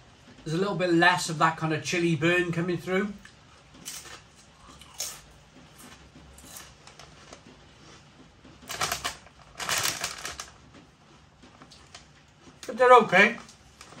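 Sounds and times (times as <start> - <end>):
crisps crackling: 3.1 - 8.0, 8.6 - 14.0.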